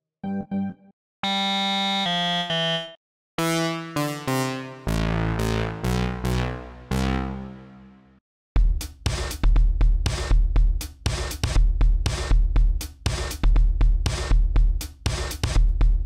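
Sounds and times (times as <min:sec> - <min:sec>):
synthesizer organ notes: 0:00.2 - 0:08.0
bright synth chords: 0:00.2 - 0:08.1
synth lead struck notes: 0:02.8 - 0:07.8
deep synth bass: 0:03.4 - 0:07.9.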